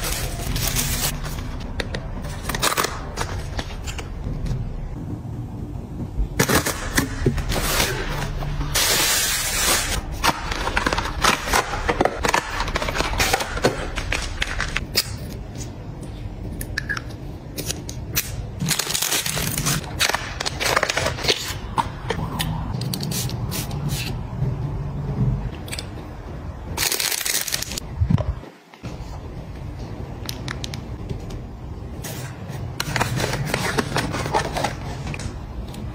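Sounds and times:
plastic wrap and cardboard crinkling: 0.0s - 1.6s, 18.6s - 21.7s, 26.8s - 27.8s.

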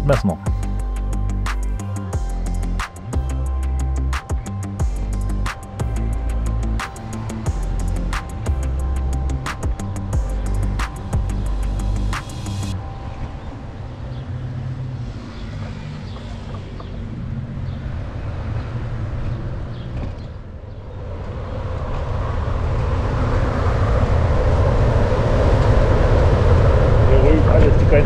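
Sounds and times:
wind rumbling on microphone: 16.1s - 28.0s.

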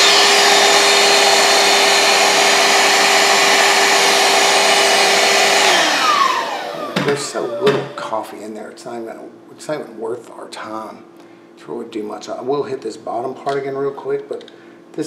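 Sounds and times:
handheld vacuum cleaner whining: 0.0s - 8.3s.

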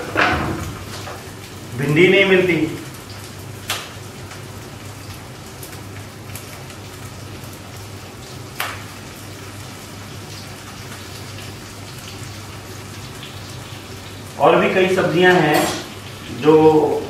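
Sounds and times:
food sizzling in hot oil: 0.0s - 1.9s, 2.5s - 17.0s.

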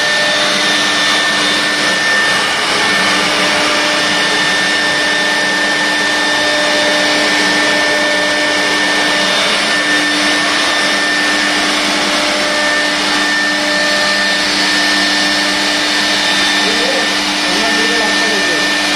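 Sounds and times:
dust extraction rushing: 0.0s - 18.9s
router spindle whine: 0.0s - 18.9s.

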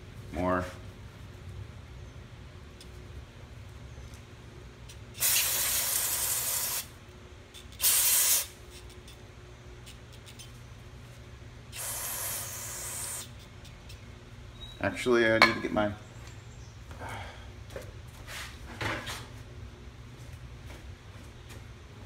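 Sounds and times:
aerosol spray hissing: 5.2s - 6.9s, 7.8s - 8.6s, 11.7s - 13.4s.

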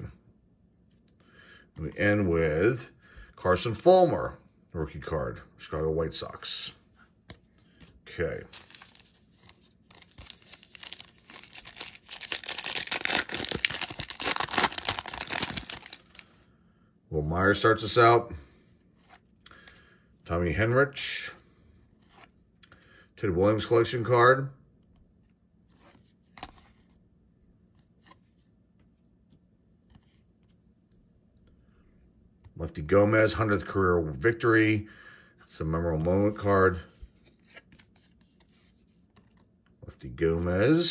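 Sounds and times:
trading cards rustling: 7.2s - 16.4s
foil wrapper crinkling and tearing: 8.5s - 9.2s, 9.8s - 16.4s.

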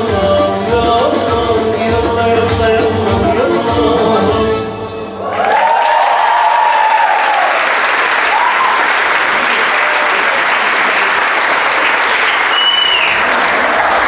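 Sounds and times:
audience applauding and cheering: 5.2s - 14.0s.

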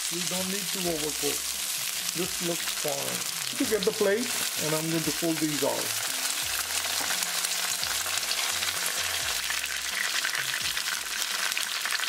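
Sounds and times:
oil sizzling in a wok: 0.0s - 12.0s.

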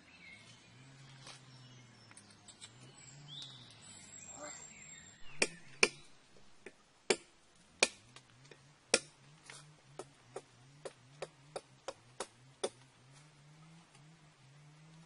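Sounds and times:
knife chopping wood: 5.2s - 8.0s, 8.9s - 9.1s, 10.0s - 12.8s.

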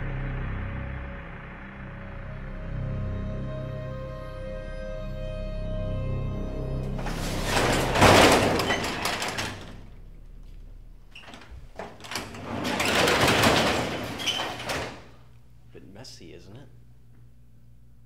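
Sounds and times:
garage door rolling on metal tracks: 6.8s - 10.3s, 11.1s - 15.3s.

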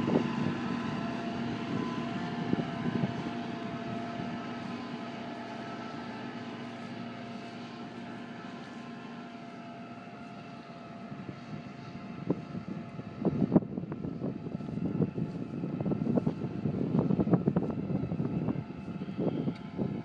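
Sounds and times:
tractor engine under load: 0.0s - 20.0s.

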